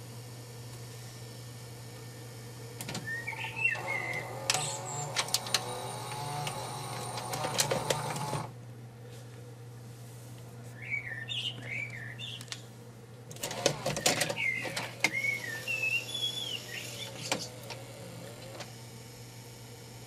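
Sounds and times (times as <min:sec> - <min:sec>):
tape mechanism humming: 0:00.0 - 0:08.6, 0:11.3 - 0:20.0
chirping whistles: 0:03.0 - 0:04.8, 0:10.8 - 0:12.5, 0:14.0 - 0:17.3.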